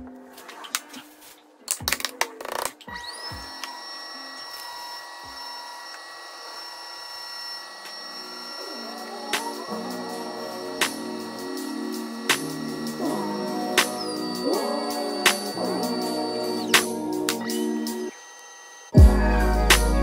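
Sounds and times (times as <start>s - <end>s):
soft background music: 0.0s - 5.8s, 7.9s - 18.1s
potter's wheel motor whining: 2.9s - 19.3s.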